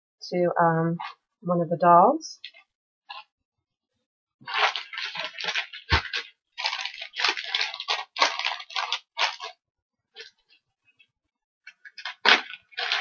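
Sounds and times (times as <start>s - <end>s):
plastic wrap crinkling: 2.4s - 3.2s, 4.4s - 9.6s, 10.2s - 10.6s, 11.7s - 13.0s.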